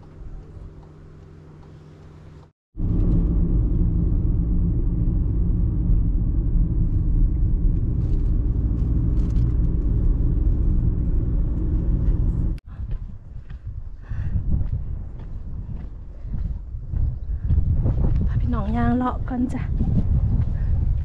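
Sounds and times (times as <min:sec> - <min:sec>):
car driving rumble: 0:00.0 - 0:18.4
wind noise on microphone: 0:02.8 - 0:21.0.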